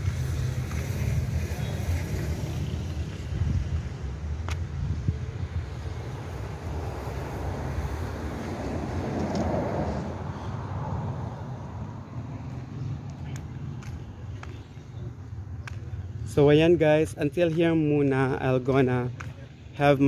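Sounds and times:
wind rumbling on microphone: 0.0s - 14.3s
outdoor street ambience: 0.0s - 20.0s.

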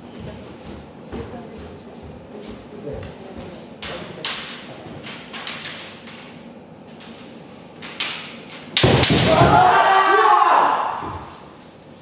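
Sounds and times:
bamboo swords clacking: 4.2s - 6.4s, 7.0s - 9.6s.

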